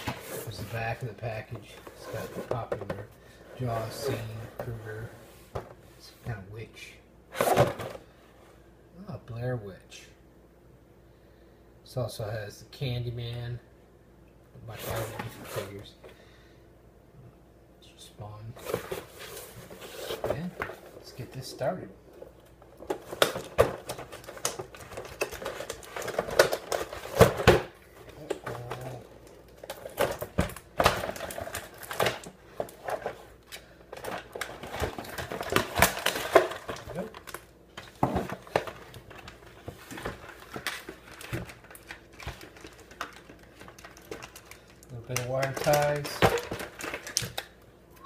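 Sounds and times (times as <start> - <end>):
plastic packaging crackling: 22.8 - 27.4, 28.3 - 47.6.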